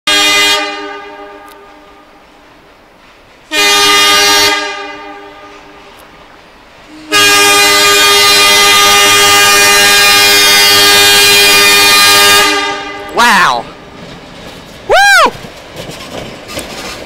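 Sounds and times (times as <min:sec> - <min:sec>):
train horn blasts: 0:00.1 - 0:02.1, 0:03.5 - 0:05.9, 0:06.9 - 0:13.2.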